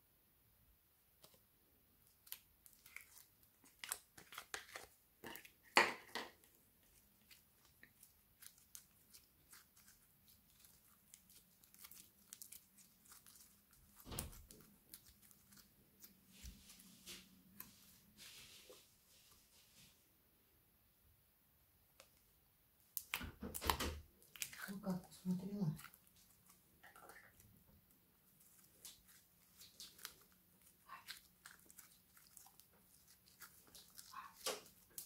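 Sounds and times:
slime crackling and popping: 7.2s - 15.7s, 28.4s - 35.0s.

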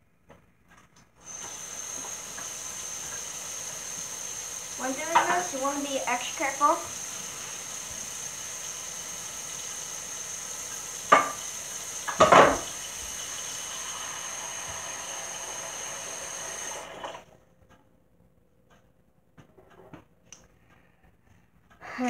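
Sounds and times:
steady hiss: 1.3s - 17.2s
frying pan clattering knocks: 11.1s - 11.4s, 12.1s - 12.7s.

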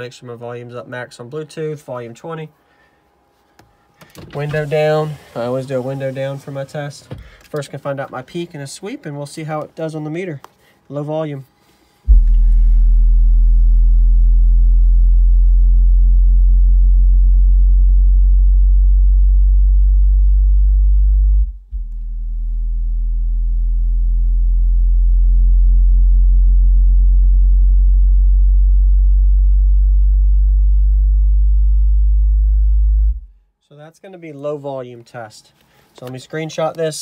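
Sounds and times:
subwoofer low sine sweep tone: 12.0s - 33.5s
buzzing overtones: 12.1s - 33.3s.

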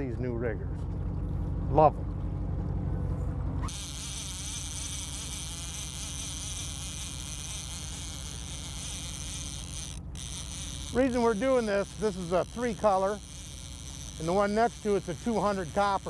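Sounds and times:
boat engine low hum: 0.0s - 16.0s
high-pitched buzzing hum: 3.6s - 16.0s.

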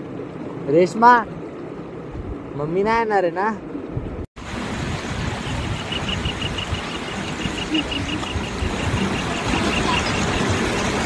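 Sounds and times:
flowing river water: 0.0s - 2.8s, 3.7s - 11.0s
wind buffeting microphone: 1.2s - 2.6s, 3.6s - 11.0s.

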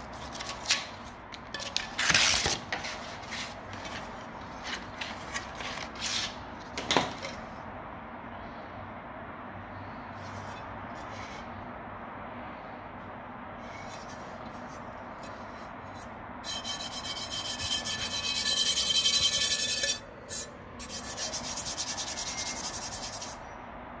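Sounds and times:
rasping rubbing strokes: 13.7s - 23.4s.

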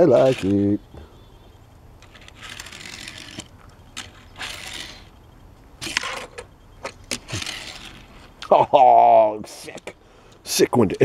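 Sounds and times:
toy car rolling on tabletop: 0.1s - 0.6s, 2.0s - 5.1s, 5.8s - 8.3s.

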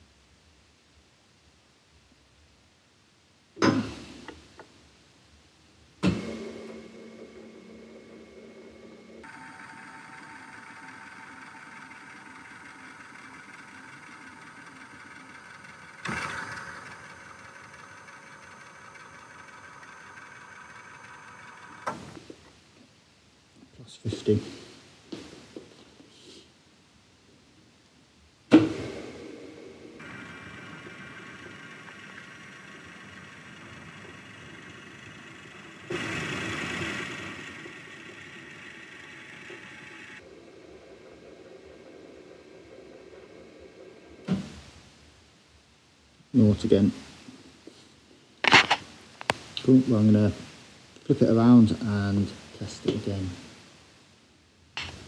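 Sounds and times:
workshop hum: 5.8s - 23.0s, 28.5s - 53.6s
milling machine table motor: 6.0s - 22.2s, 30.0s - 44.3s
camera hiss: 48.4s - 51.0s.

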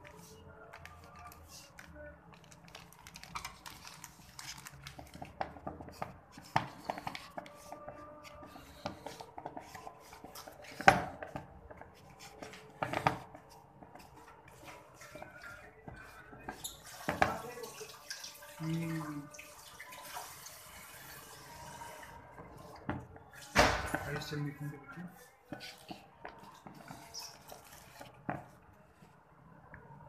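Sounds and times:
dough kneaded in bowl: 0.0s - 18.9s.

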